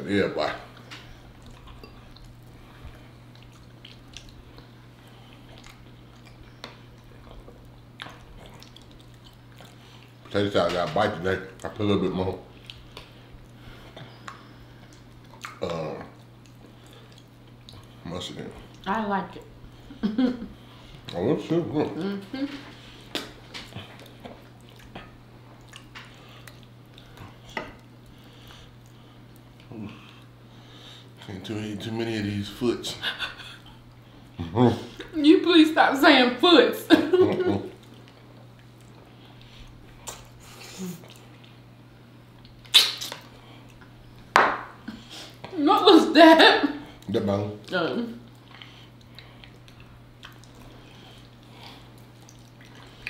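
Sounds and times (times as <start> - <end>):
steady low hum: 0.0 - 53.0
soft chewing: 0.4 - 32.0, 37.4 - 45.6, 46.8 - 53.0
wet squishing of food handled: 0.7 - 19.7, 46.9 - 53.0.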